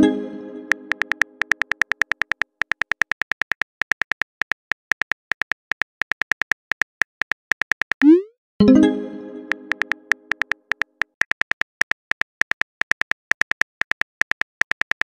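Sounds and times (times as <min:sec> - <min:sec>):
smartphone keyboard clicks: 0:00.9 - 0:08.1, 0:09.7 - 0:15.0.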